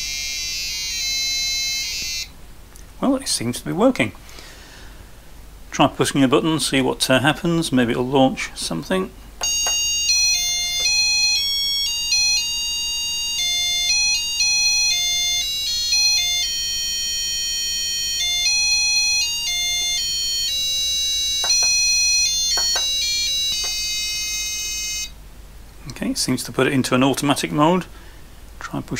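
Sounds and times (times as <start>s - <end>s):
electronic buzzer beeping a tune: 0.0s - 2.3s, 9.4s - 25.2s.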